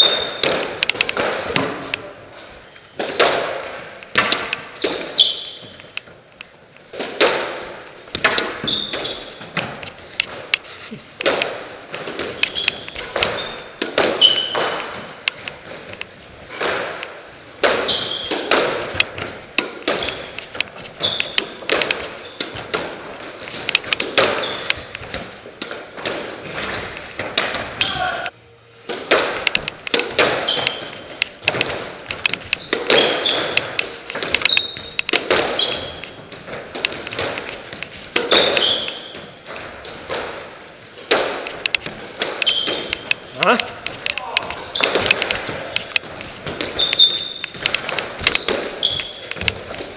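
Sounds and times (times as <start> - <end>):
squash ball cracking off rackets: 0.0 - 2.2, 2.8 - 49.9
shoes squeaking on wooden floor: 0.0 - 28.4, 29.1 - 49.9
ball thudding against walls: 6.9 - 10.6, 28.9 - 49.9.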